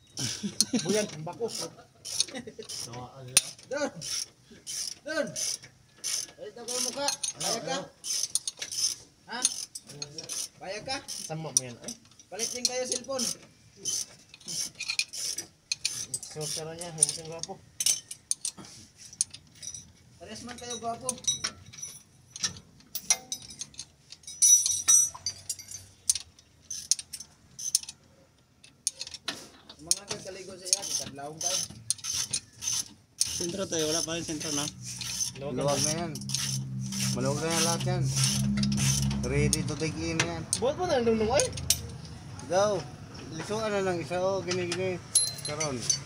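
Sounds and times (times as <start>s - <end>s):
tool clicks and scrapes: 0.6s - 19.6s, 28.7s - 40.7s
metal squeaks: 30.2s - 42.0s.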